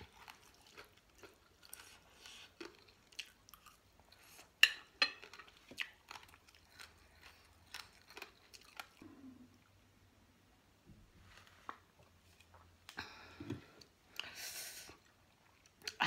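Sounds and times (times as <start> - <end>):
chewing with sharp crunches: 0.0 - 9.3.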